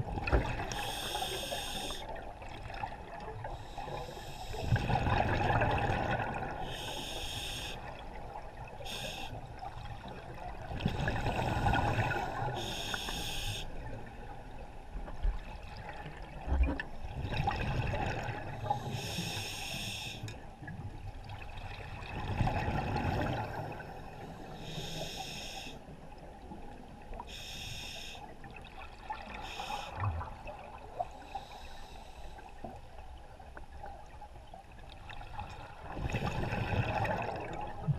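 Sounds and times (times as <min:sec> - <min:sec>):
exhaled air bubbling: 0:00.0 - 0:07.0, 0:35.6 - 0:37.9
regulator hissing inhalations: 0:00.7 - 0:02.1, 0:03.6 - 0:04.7, 0:06.7 - 0:07.9, 0:08.9 - 0:09.4, 0:12.6 - 0:13.7, 0:18.8 - 0:20.3, 0:24.6 - 0:25.8, 0:27.3 - 0:28.3, 0:31.2 - 0:32.4.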